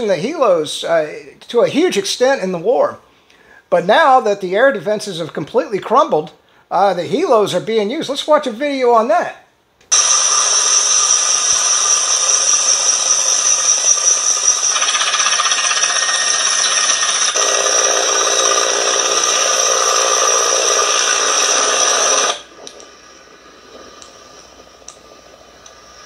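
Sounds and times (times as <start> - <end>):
helicopter rotor noise: 9.9 - 22.6
helicopter turbine whine: 9.9 - 26.0.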